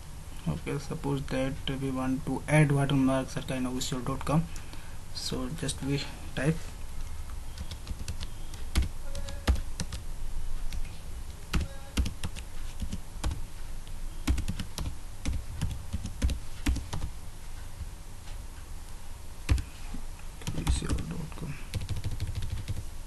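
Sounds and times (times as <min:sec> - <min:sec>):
keyboard typing: 0:07.5 - 0:10.0, 0:11.5 - 0:13.4, 0:14.2 - 0:17.1, 0:19.5 - 0:19.7, 0:20.4 - 0:22.9.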